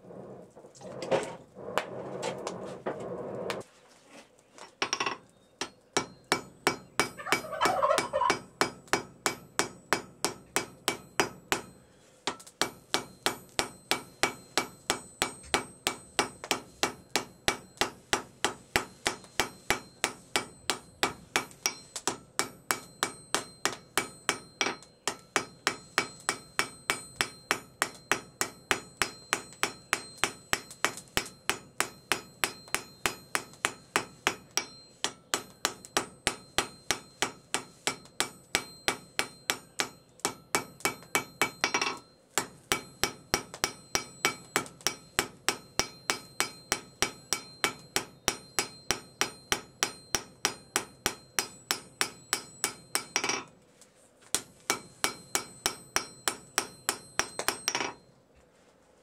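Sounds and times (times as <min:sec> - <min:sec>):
hammer striking metal on anvil: 0:04.8 - 0:53.5, 0:54.3 - 0:58.1
faint high ring: 0:22.8 - 0:43.0.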